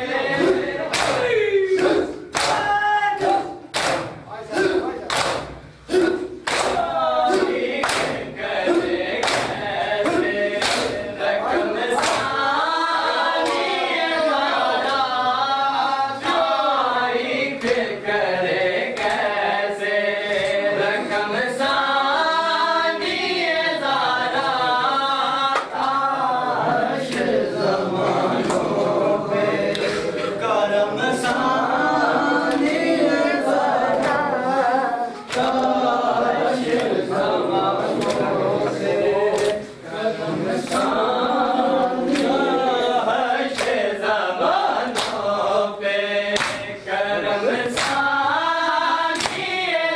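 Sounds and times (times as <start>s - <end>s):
men chanting in unison: 0.0s - 49.9s
rhythmic chest-beating slaps: 0.0s - 49.9s.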